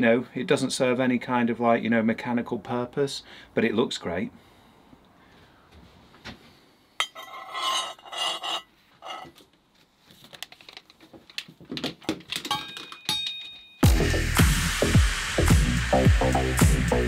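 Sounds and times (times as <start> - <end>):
ringing metal knocks: 12.5 - 13.6.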